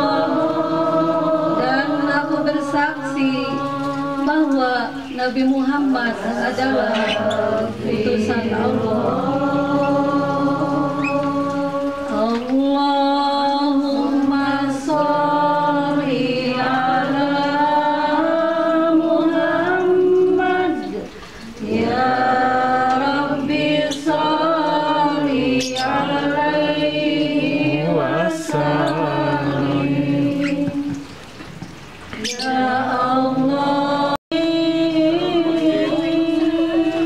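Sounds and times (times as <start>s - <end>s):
woman chanting melodically: 0.0s - 31.2s, 32.2s - 37.0s.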